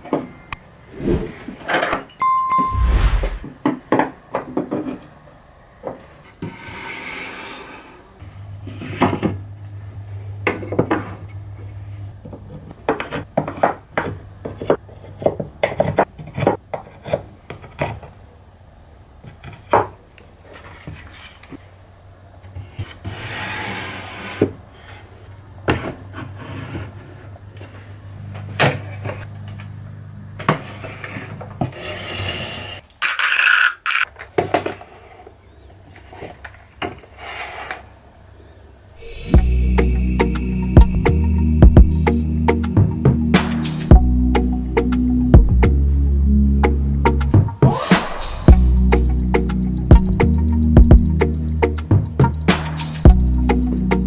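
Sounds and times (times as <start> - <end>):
metal scraping slides: 0.9 - 1.8.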